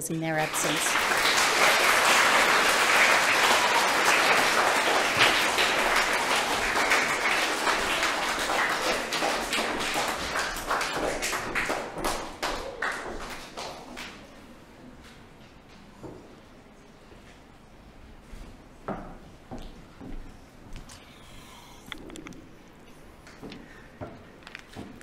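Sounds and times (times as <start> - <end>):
audience applauding: 0.3 - 14.3.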